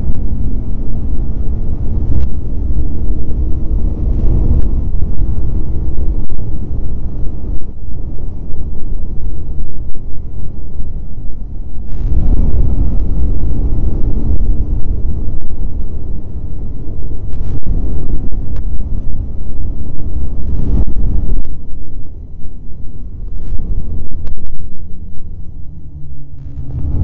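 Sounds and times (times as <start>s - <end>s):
snowmobile engine rumble: 0.0s - 27.0s.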